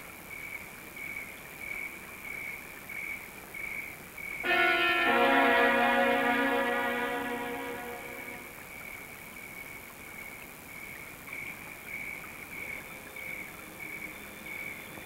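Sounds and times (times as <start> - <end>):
film soundtrack hiss: 0.0 - 15.0
high pulsing tone: 4.5 - 8.6.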